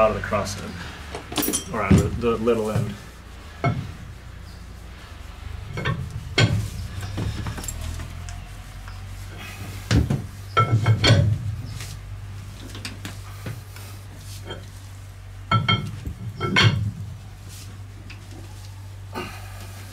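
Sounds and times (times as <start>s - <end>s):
steady low hum: 0.0s - 19.9s
metal clanks and knocks: 1.1s - 11.8s, 15.5s - 17.2s.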